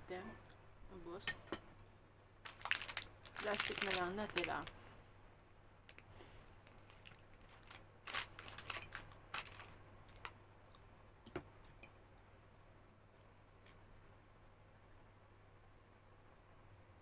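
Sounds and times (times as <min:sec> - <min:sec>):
plastic wrapper crinkling: 0:02.4 - 0:04.8, 0:05.9 - 0:10.4.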